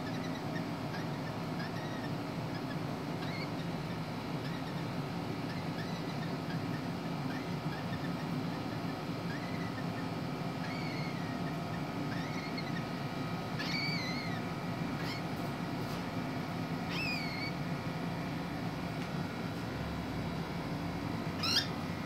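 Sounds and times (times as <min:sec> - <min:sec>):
cockatiels chirping: 0:00.0 - 0:03.8, 0:04.4 - 0:14.4, 0:15.0 - 0:15.3, 0:16.9 - 0:17.6, 0:21.4 - 0:21.8
steady low hum: 0:00.0 - 0:22.0.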